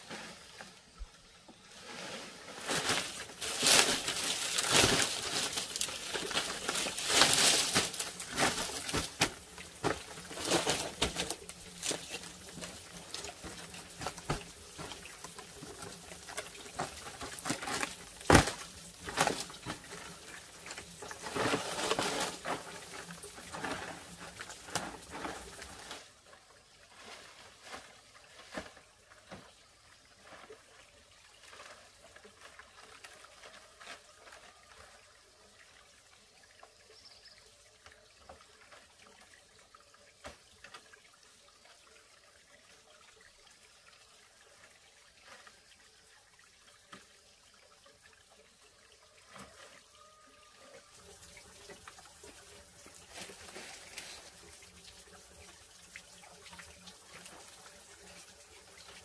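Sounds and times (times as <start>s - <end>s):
faint trickling water: 0.0s - 59.0s.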